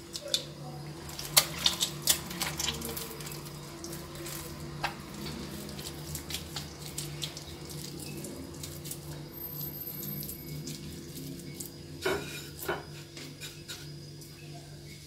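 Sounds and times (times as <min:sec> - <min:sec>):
wet dough slapping and squelching: 0:01.0 - 0:09.1.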